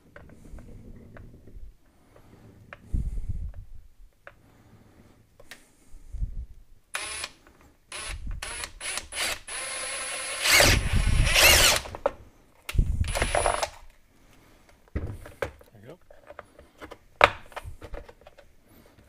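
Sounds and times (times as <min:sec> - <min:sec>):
cordless drill cutting plastic: 0:07.0 - 0:11.9, 0:13.1 - 0:13.7.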